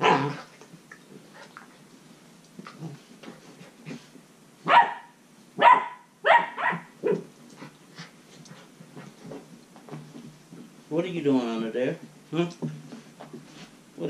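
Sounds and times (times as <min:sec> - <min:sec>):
puppies barking: 0:04.7 - 0:07.2.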